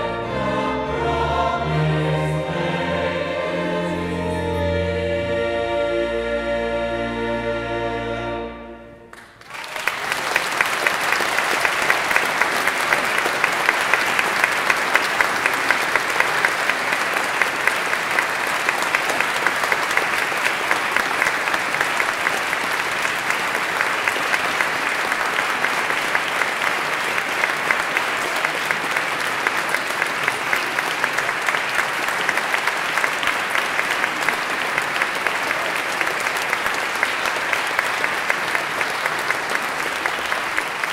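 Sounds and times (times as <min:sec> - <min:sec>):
choir and strings holding chord: 0:00.0 - 0:09.2
audience applauding: 0:09.1 - 0:40.9.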